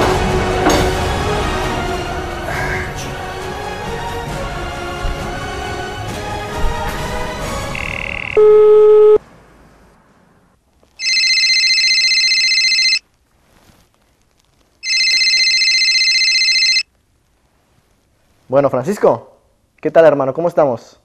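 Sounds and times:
telephone ringing: 0:07.7 - 0:09.2, 0:11.0 - 0:13.0, 0:14.8 - 0:16.9.

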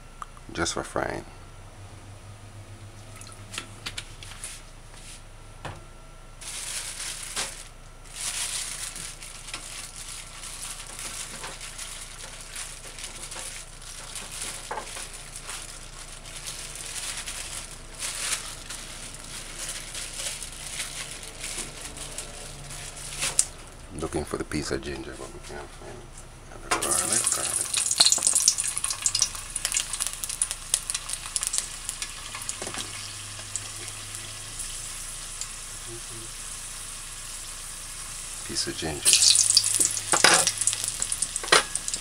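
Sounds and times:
hot oil sizzling and popping: 0:10.3 - 0:19.3, 0:26.7 - 0:42.0.

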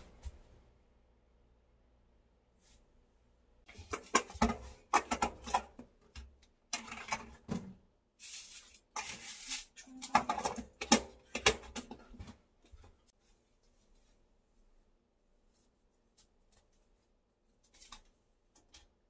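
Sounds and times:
kitchen items knocking and clattering: 0:03.7 - 0:07.9, 0:08.9 - 0:13.1.

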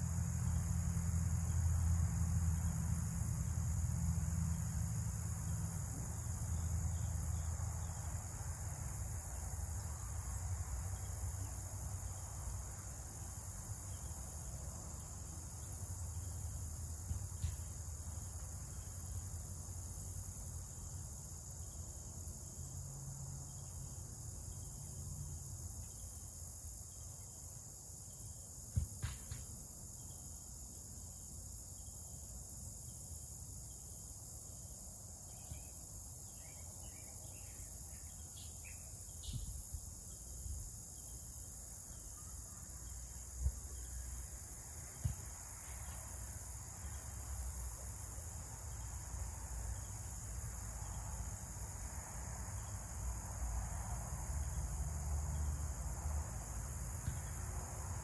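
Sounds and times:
cricket chorus: 0:00.0 - 0:58.0
sharp knock: 0:28.7 - 0:29.5.

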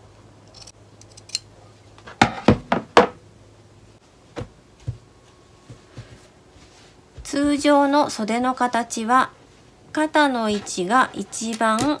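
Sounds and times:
knocks on wooden tabletop: 0:02.2 - 0:03.2
soft thumps: 0:04.3 - 0:06.3.

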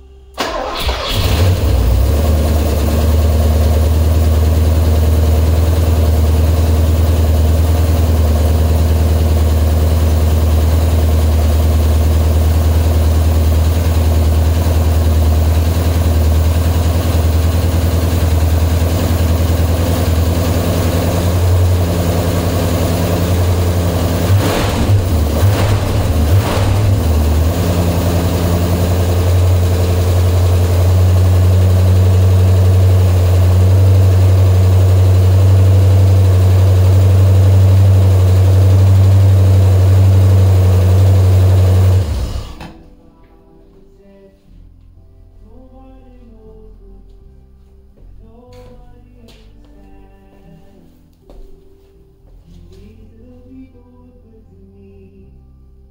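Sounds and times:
car engine starting and idling: 0:00.0 - 0:42.9.

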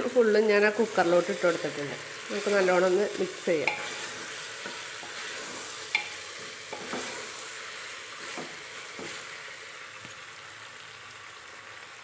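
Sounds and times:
food sizzling: 0:00.0 - 0:12.0
spatula scraping and knocking pot: 0:03.6 - 0:07.3, 0:08.2 - 0:09.2.

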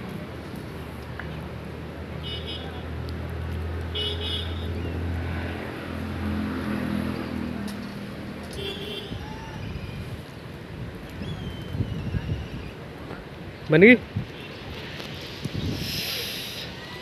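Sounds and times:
vehicle engine passing: 0:04.5 - 0:08.6.

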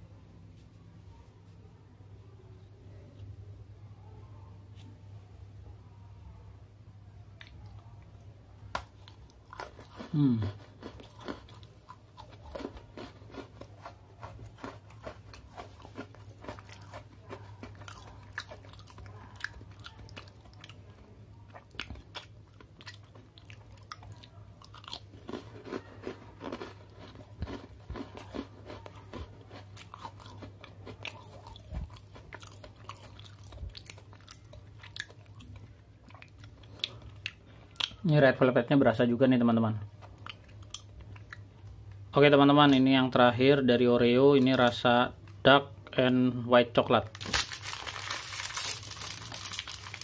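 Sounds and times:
person chewing crunchy cookies: 0:07.4 - 0:38.2, 0:39.8 - 0:42.1, 0:47.2 - 0:50.0.

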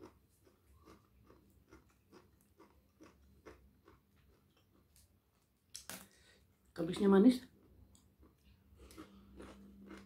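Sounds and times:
faint chewing clicks: 0:00.0 - 0:05.1, 0:07.6 - 0:10.0.

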